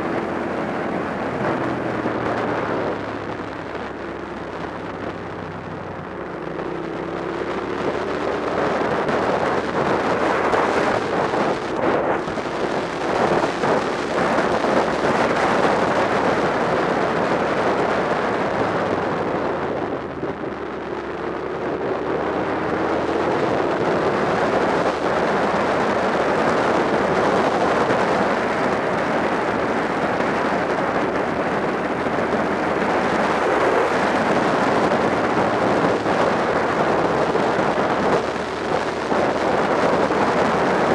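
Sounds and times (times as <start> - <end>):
motorcycle engine running: 0.0 - 40.9
wind rushing over microphone: 0.0 - 40.9.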